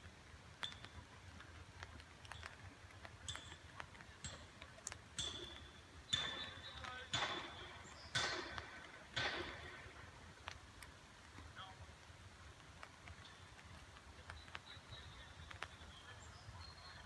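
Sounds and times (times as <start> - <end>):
loose stones clinking: 0.4 - 11.5.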